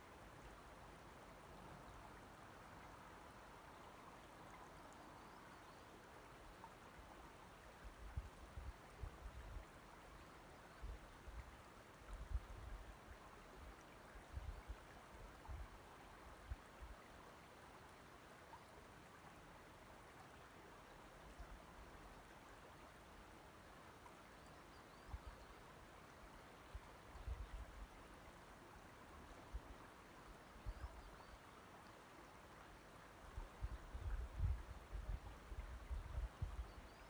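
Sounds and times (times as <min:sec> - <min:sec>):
wind rumble on microphone: 0:33.4 - 0:36.9.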